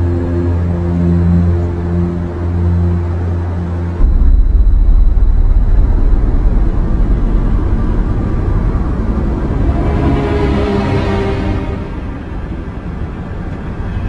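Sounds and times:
loud low rumble: 0:04.0 - 0:10.8.

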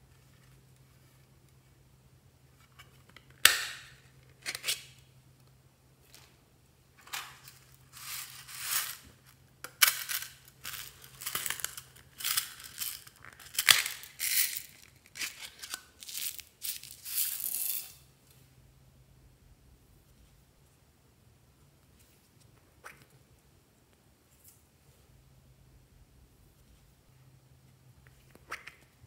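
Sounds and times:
beads rattling in metal tin: 0:07.4 - 0:09.1, 0:09.7 - 0:18.0.

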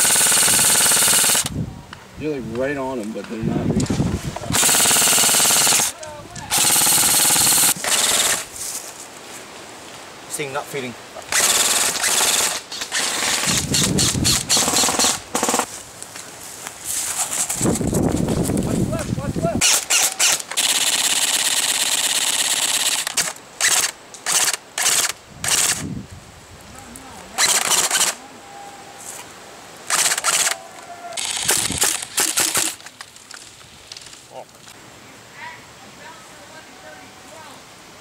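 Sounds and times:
airsoft rifles firing bursts: 0:00.0 - 0:01.5, 0:04.5 - 0:05.9, 0:06.5 - 0:08.4, 0:11.3 - 0:15.7, 0:19.6 - 0:25.8, 0:27.4 - 0:28.2, 0:29.9 - 0:30.6, 0:31.2 - 0:32.8.

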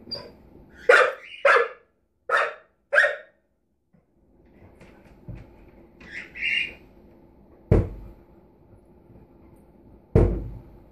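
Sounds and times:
sudden thump: 0:07.7 - 0:08.0, 0:10.1 - 0:10.7.

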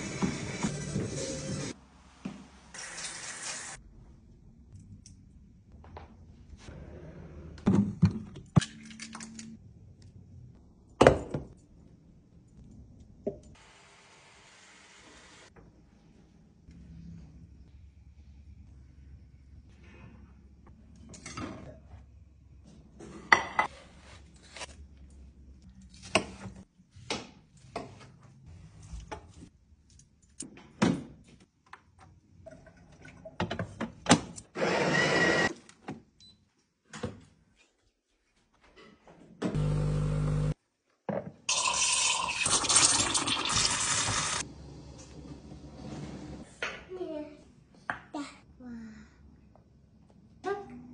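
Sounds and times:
water running from tap: 0:02.8 - 0:03.8, 0:41.5 - 0:44.4.

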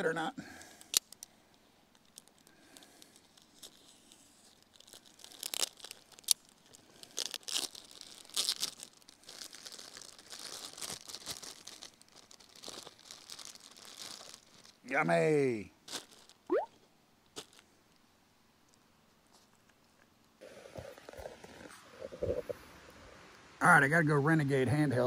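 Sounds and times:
sandwich wrapping crinkling and tearing: 0:00.5 - 0:14.9, 0:15.8 - 0:16.5, 0:17.2 - 0:17.8.

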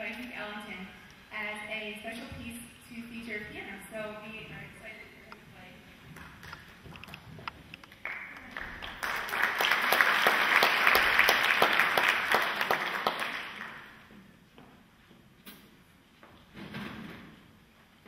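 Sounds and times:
audience applauding: 0:08.0 - 0:14.1.

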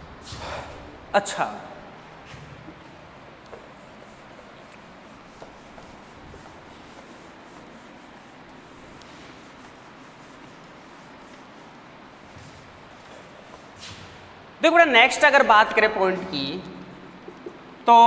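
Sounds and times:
duster rubbing on whiteboard: 0:02.2 - 0:14.1.

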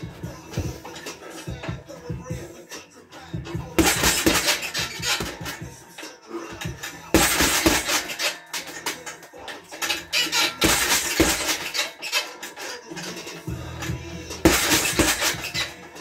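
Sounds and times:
background music: 0:00.0 - 0:16.0
gloved punches on heavy bag: 0:03.7 - 0:05.6, 0:06.7 - 0:08.0, 0:10.6 - 0:11.7, 0:14.4 - 0:15.7.

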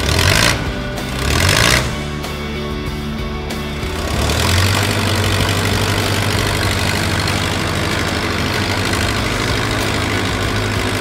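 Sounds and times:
heavy machine engine humming: 0:00.0 - 0:11.0.

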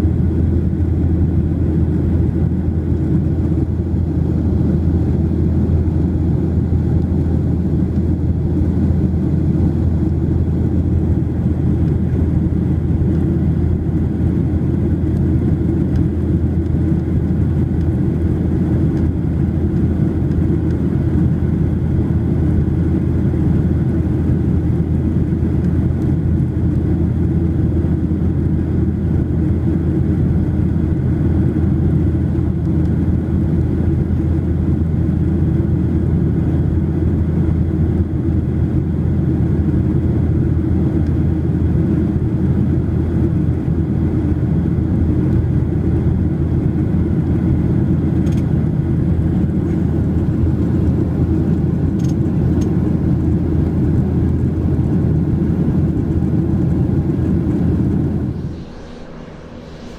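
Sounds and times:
jet engine drone: 0:00.0 - 0:59.9
air rushing along fuselage: 0:41.2 - 0:59.9.

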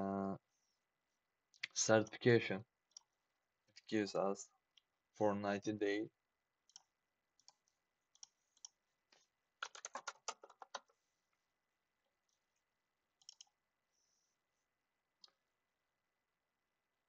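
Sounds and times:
keyboard typing: 0:09.6 - 0:10.9, 0:13.2 - 0:13.6
mouse clicks: 0:13.2 - 0:13.5.

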